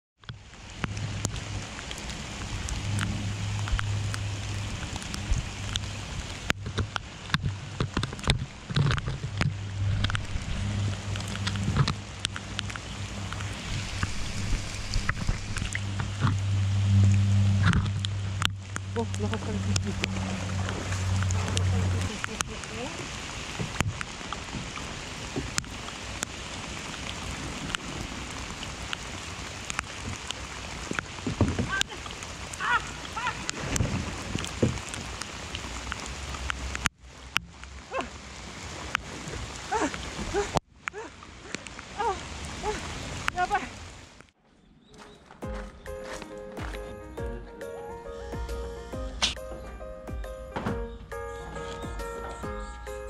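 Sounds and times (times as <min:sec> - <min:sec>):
heavy rain on water: 0:00.2 - 0:44.3
raindrops tapping close: 0:00.2 - 0:44.4
steady low hum: 0:09.2 - 0:22.4.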